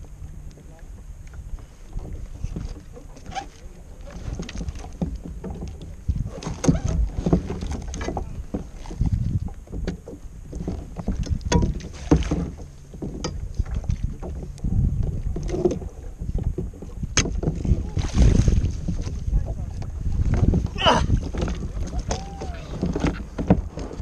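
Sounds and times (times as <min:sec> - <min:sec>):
wind and water rumble: 0:00.0 - 0:24.0
fishing rod knocking on kayak: 0:11.0 - 0:17.8.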